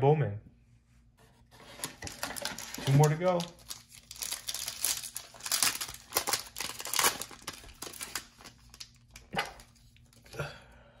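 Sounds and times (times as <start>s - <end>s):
foil wrapper crinkling: 1.8s - 10.1s.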